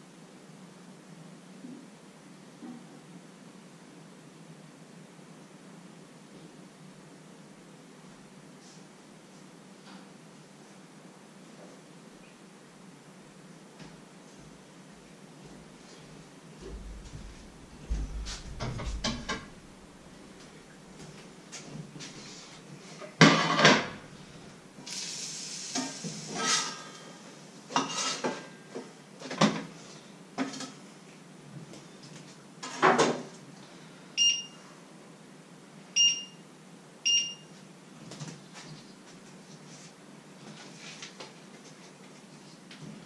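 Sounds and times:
spatula scraping frying pan: 0:27.8 - 0:28.4
short electronic beeps: 0:34.2 - 0:34.6, 0:36.0 - 0:36.4, 0:37.1 - 0:37.5.

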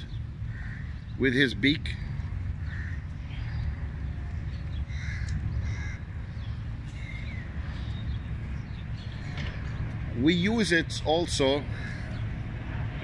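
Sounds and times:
steady low rumble: 0:00.0 - 0:13.0
short bird calls: 0:02.6 - 0:09.8.

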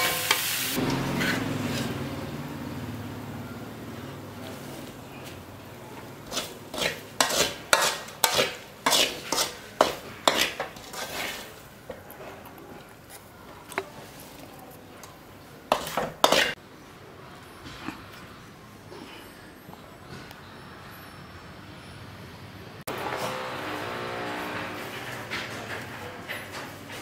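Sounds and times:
metal spoon scraping a dish: 0:01.1 - 0:02.0, 0:06.2 - 0:14.2, 0:15.7 - 0:16.6.

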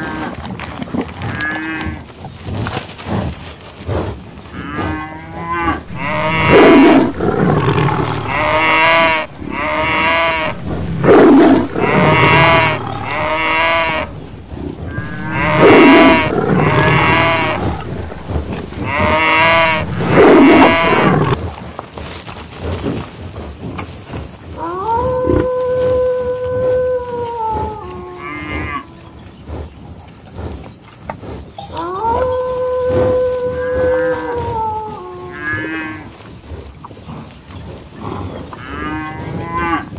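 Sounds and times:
cattle mooing: 0:04.4 - 0:21.4, 0:27.8 - 0:29.2, 0:31.6 - 0:36.2, 0:38.0 - 0:39.9.

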